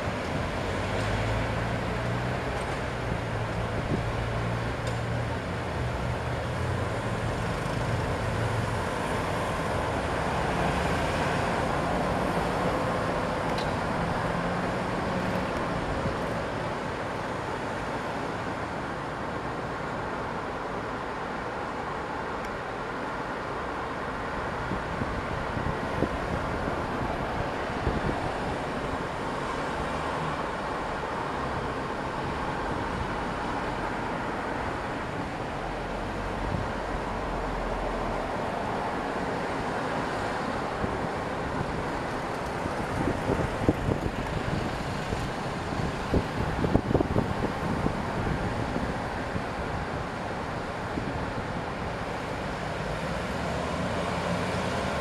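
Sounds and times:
distant city traffic rumble: 0.0 - 55.0
wind on microphone: 24.6 - 29.1, 40.6 - 51.9.

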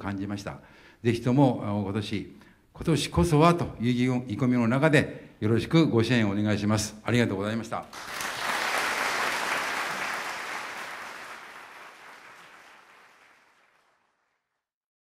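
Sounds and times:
audience applauding: 7.9 - 14.5.

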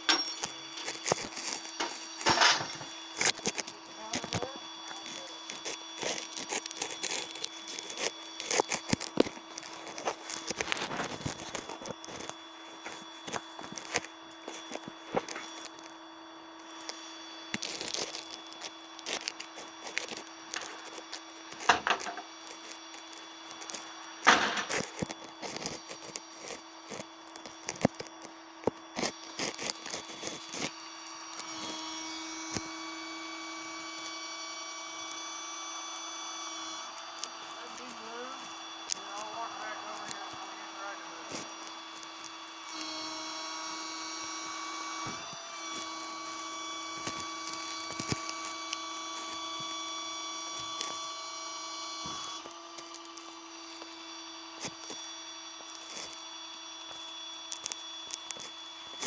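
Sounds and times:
metal chains clanking: 0.0 - 0.8
loud steady whine: 0.0 - 59.0
steady mechanical hum: 0.0 - 59.0.

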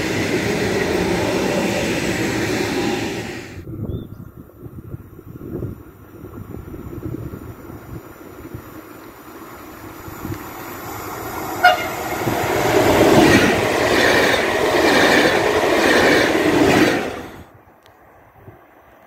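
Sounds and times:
train wheel and rail noise: 0.0 - 19.0
train horn toot: 11.6 - 12.3.

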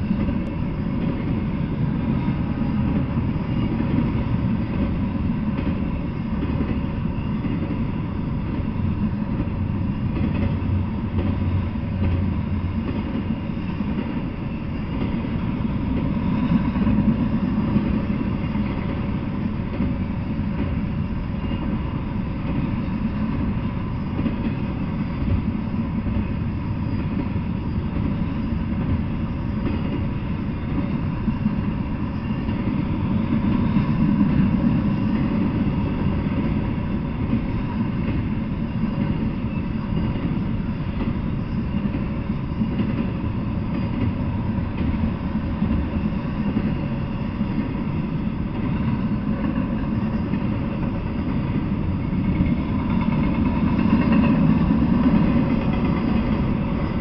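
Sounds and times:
freight train rumbling past: 0.0 - 57.0.

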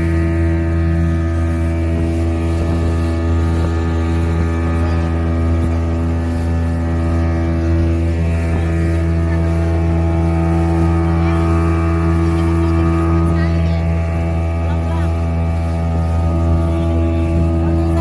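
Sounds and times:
speedboat engine drone: 0.0 - 18.0.

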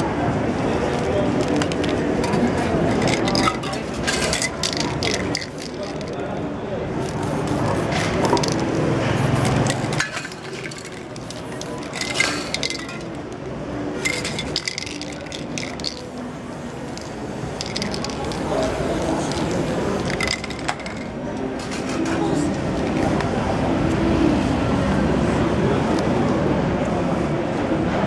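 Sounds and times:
spray cans hissing: 0.9 - 6.3, 7.0 - 21.1
cans clinking: 1.4 - 6.2, 8.1 - 8.7, 9.4 - 13.4, 14.0 - 16.2, 16.9 - 21.1.

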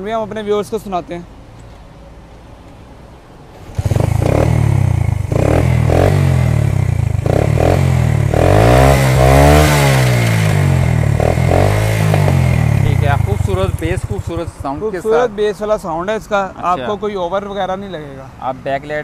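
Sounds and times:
motorcycle kick-start: 3.6 - 5.2
motorcycle engine revving: 3.6 - 15.3.

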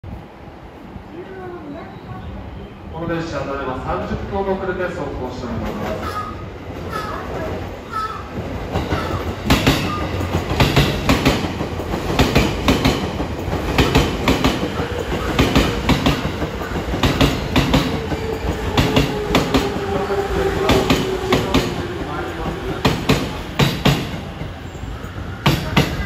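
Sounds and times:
steady train whine: 0.0 - 26.0
train wheels clicking over rail joints: 8.0 - 26.0.

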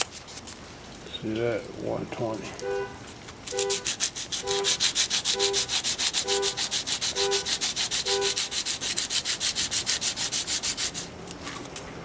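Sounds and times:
sandpaper rubbing metal: 3.5 - 11.1.

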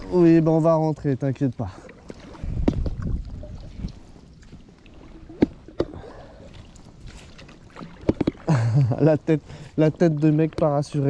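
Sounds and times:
paddle splashing in water: 1.6 - 8.8.

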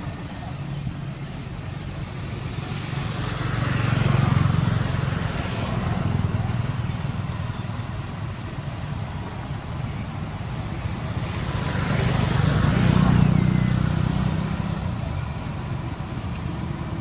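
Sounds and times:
vehicle engine passing by: 0.1 - 8.4, 10.0 - 17.0.

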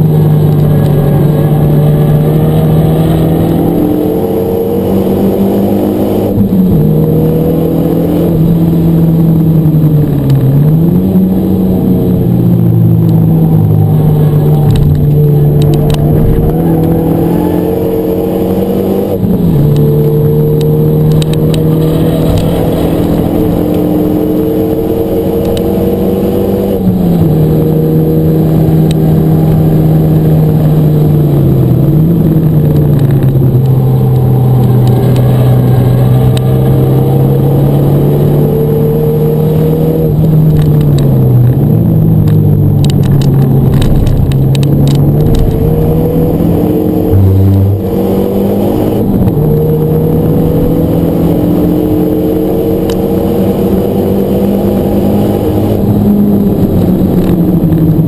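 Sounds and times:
car engine pulling hard: 0.0 - 58.0.

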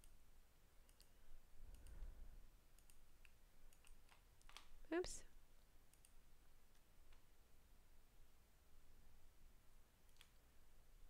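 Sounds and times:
faint hum: 0.0 - 11.0
faint click: 1.7 - 2.1.

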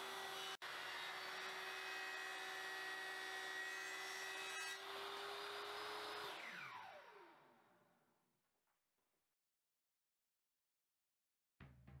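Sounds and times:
table saw cutting wood: 0.0 - 7.4.

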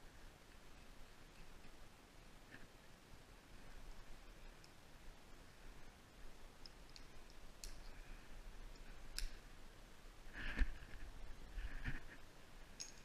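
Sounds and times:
climbing hardware clinking: 12.8 - 13.0.

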